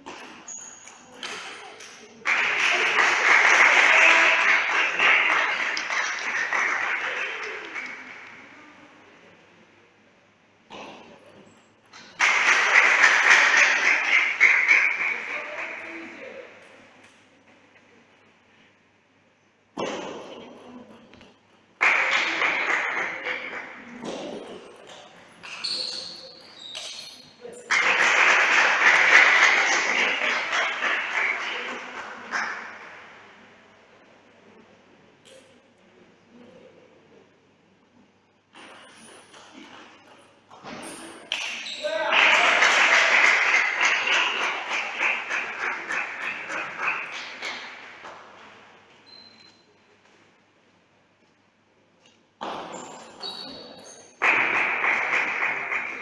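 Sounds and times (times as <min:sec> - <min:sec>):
spectators applauding: 0:02.2 - 0:08.4, 0:12.1 - 0:16.0, 0:21.8 - 0:23.8, 0:27.7 - 0:33.0, 0:41.8 - 0:48.4, 0:54.2 - 0:56.0.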